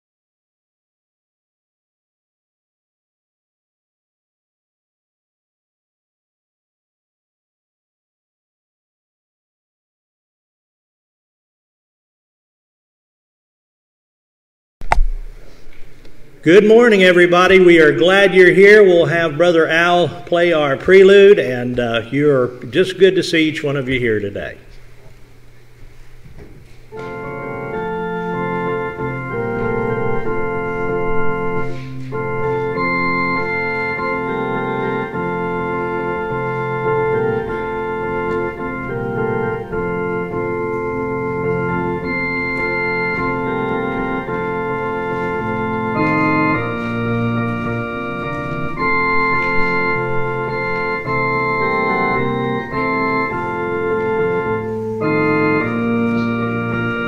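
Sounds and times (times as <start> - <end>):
organ playing sustained chords: 15.2 - 25.8, 26.8 - 57.0.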